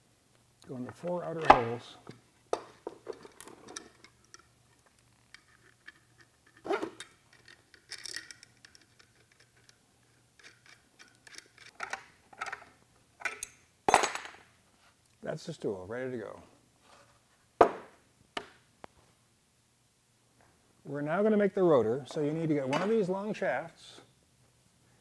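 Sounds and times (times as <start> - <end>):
metal clicks and clinks: 3.1 - 13.6.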